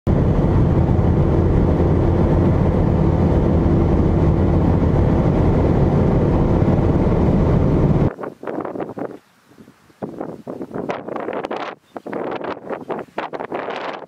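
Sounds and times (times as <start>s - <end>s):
car road noise at highway speed: 0.1s - 9.2s.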